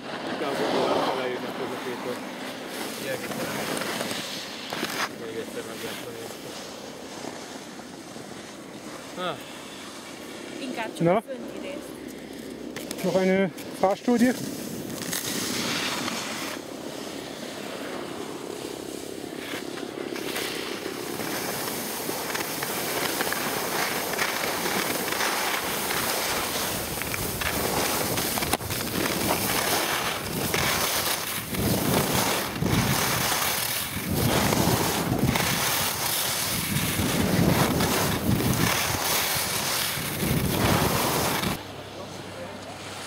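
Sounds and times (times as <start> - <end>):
skis scraping on snow: 0.0 - 43.0
wind rushing over microphone: 25.6 - 41.6.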